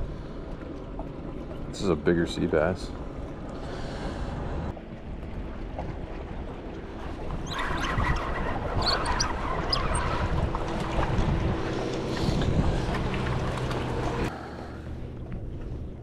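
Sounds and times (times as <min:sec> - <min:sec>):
wind on microphone: 0:04.2 - 0:14.3
low steady hum: 0:08.9 - 0:16.0.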